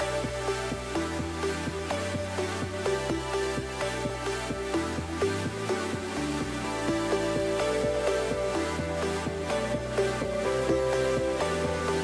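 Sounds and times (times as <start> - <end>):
background music with struck notes: 0.0 - 12.0.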